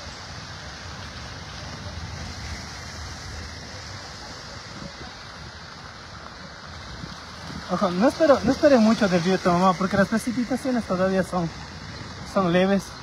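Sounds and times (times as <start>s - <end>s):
light rain on cobbled street: 0.0s - 13.0s
wind rumble on microphone: 0.0s - 13.0s.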